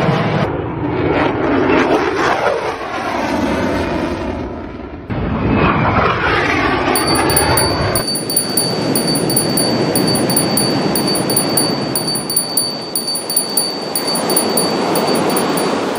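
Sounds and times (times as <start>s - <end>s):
thin high steady tone: 7.0s - 15.9s
wind chimes tinkling: 7.0s - 15.9s.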